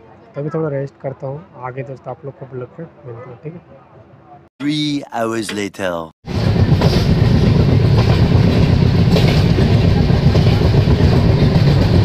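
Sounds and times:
train wheels rumbling on track: 6.3s - 12.0s.

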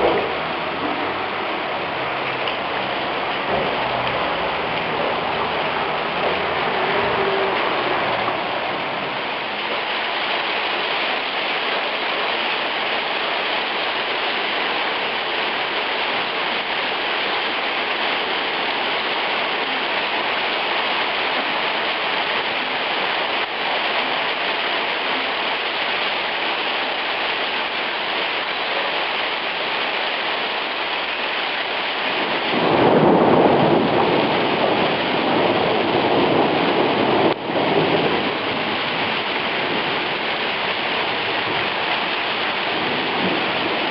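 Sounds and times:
thunder rumble: 0.0s - 9.6s, 32.2s - 43.9s
hail and rain on cobbles and metal: 0.0s - 43.9s.

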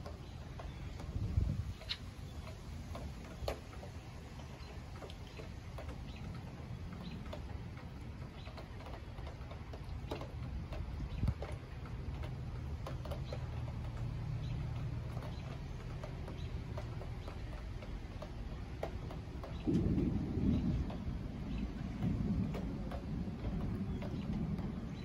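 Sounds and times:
sharp ticks and clicks: 0.0s - 25.0s
low thunder rumble: 19.5s - 25.0s.

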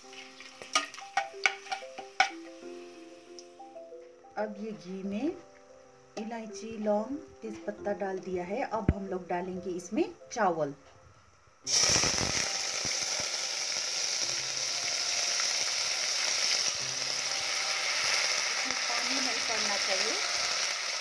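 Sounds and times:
rice sizzling in hot ghee: 0.0s - 3.6s, 11.7s - 21.0s.

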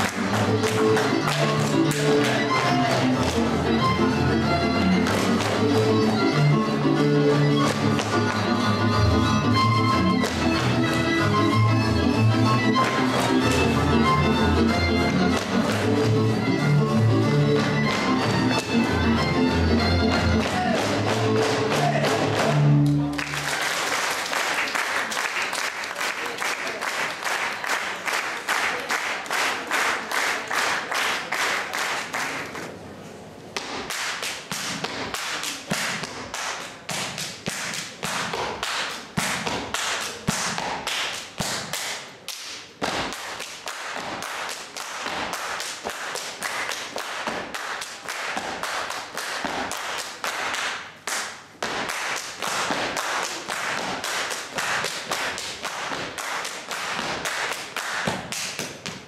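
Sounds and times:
audience applause: 23.1s - 32.5s.

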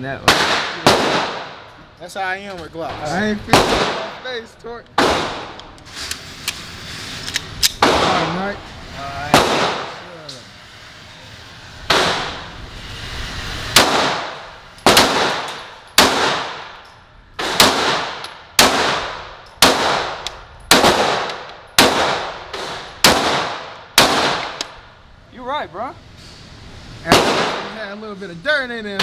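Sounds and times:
pistol shots echoing: 0.2s - 1.6s, 3.5s - 4.2s, 9.3s - 10.0s, 13.8s - 16.8s, 17.4s - 24.6s, 27.1s - 27.7s.

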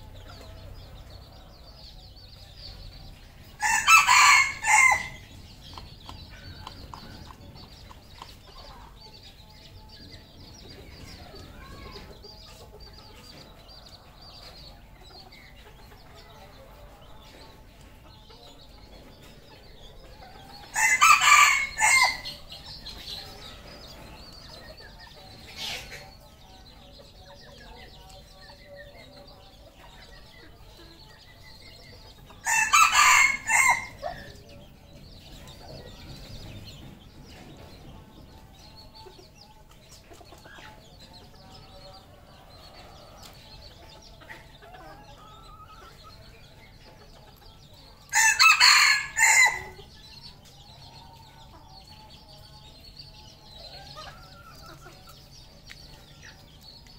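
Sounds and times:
faint clucking and chirps: 0.0s - 56.9s
rooster crowing: 3.6s - 5.2s, 20.7s - 22.3s, 32.4s - 34.0s, 48.1s - 49.8s.

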